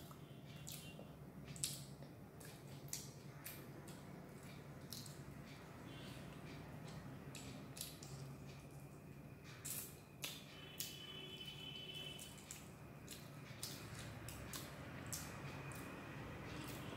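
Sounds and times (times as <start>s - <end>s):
lip smacks and chewing: 0.0s - 5.4s, 6.8s - 8.7s, 12.2s - 15.9s.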